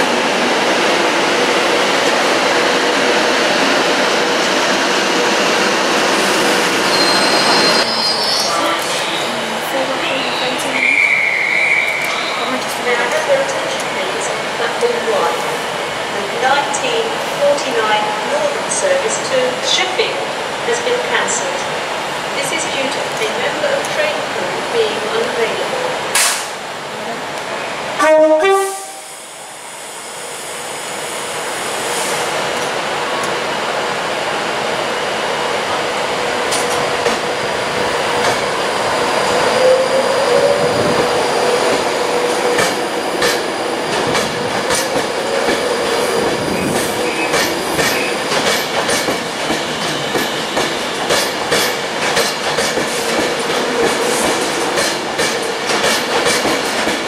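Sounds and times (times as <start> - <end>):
electric train rolling past: 0.0 - 25.9, 27.4 - 57.0
train wheel squeal: 6.8 - 9.2, 10.8 - 12.5
loud tone: 28.0 - 29.1.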